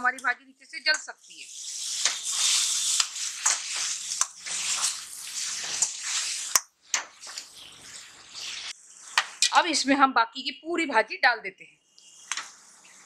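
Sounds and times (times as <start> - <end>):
greens frying hiss: 0.0 - 9.8, 11.9 - 13.0
metal spatula scraping pan: 1.4 - 6.6.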